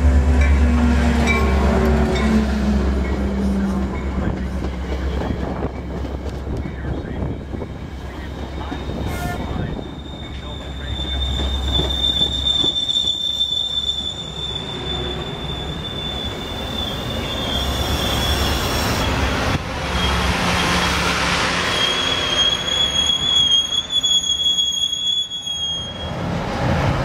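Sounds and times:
train cars rolling past: 0.0 - 27.0
wheel squeal: 9.6 - 19.2, 21.6 - 26.2.

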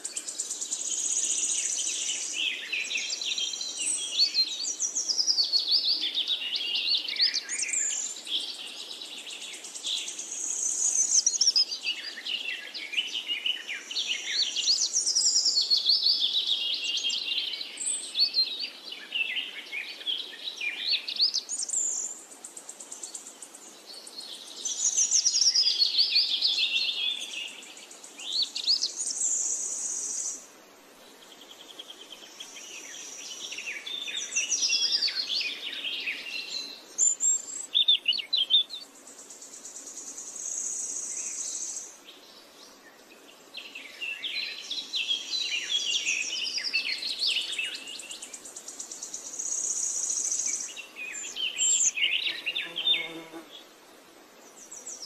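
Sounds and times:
birds chirping: 31.0 - 53.7.

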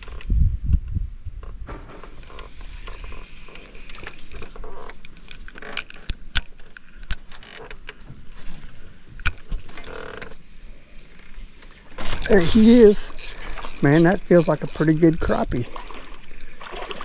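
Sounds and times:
handling rattles: 1.6 - 17.0
fishing reel whirring: 2.0 - 7.8, 11.0 - 17.0.

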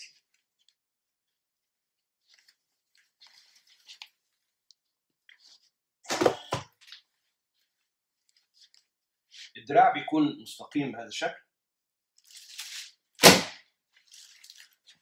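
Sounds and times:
cloth rustling: 0.0 - 9.6, 13.8 - 15.0.

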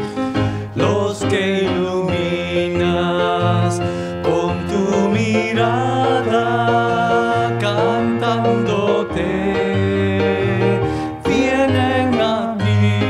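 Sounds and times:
hymn singing with instruments: 0.0 - 13.0.

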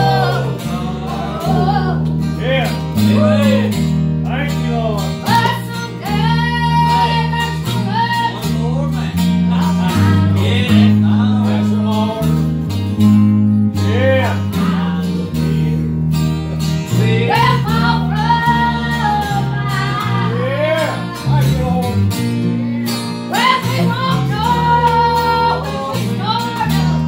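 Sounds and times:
person singing: 0.0 - 2.0, 5.2 - 12.4, 16.9 - 22.0, 22.6 - 27.0
acoustic guitars: 0.0 - 27.0
electric bass guitar: 0.0 - 27.0.

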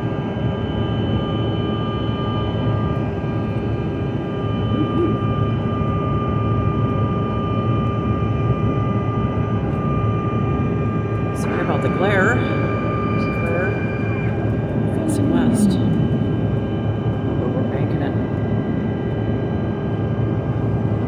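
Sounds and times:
airliner cabin engine and air rush: 0.0 - 21.0
steady high tones: 11.7 - 17.1.

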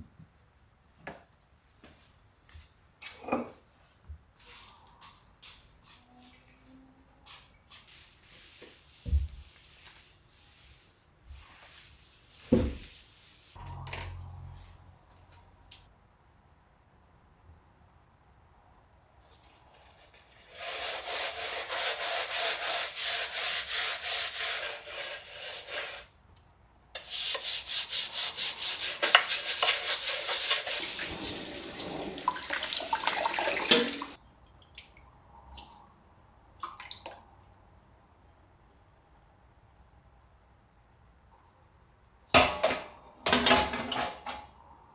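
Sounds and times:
scouring metal tray: 27.0 - 34.2.

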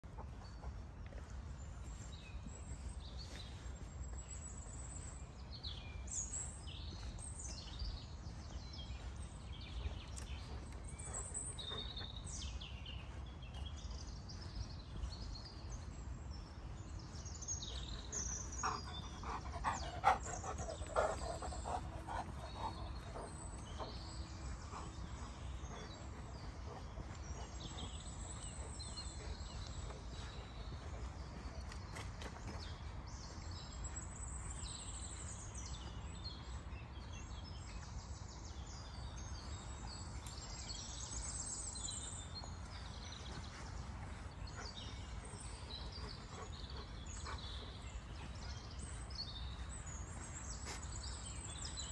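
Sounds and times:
birds chirping and trilling: 17.7 - 30.8.

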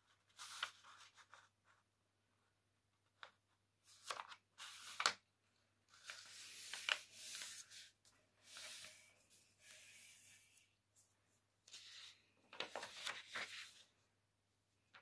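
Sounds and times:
paper crackling and rustling: 3.9 - 5.2, 5.9 - 9.1, 11.7 - 13.9.

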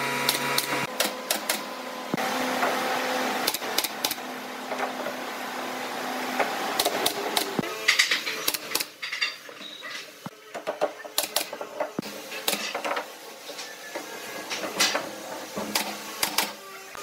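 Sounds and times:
pneumatic nail gun firing: 0.2 - 1.7, 3.4 - 4.2, 15.7 - 16.6.

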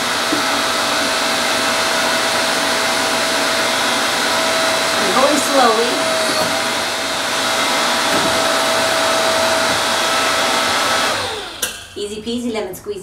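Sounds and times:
hydraulic pump motor humming: 0.0 - 11.8.

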